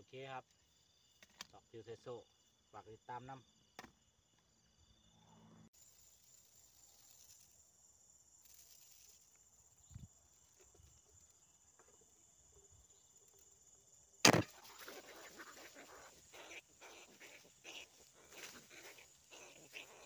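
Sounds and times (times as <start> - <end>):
crickets trilling: 0.0 - 20.0
loud sharp crack: 14.2 - 14.6.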